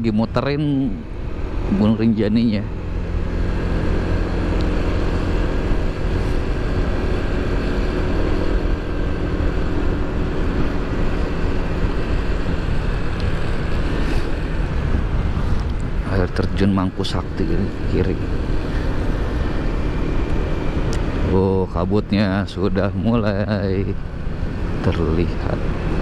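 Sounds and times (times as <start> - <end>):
motorcycle engine hum: 0.0 - 26.0
road noise: 0.0 - 26.0
wind noise: 3.7 - 21.3.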